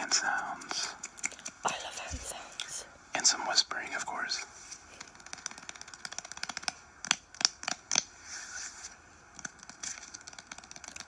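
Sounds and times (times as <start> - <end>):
fingers crackling: 0.0 - 2.8, 4.9 - 8.1, 9.3 - 11.0
sharp clicks: 5.0 - 8.0.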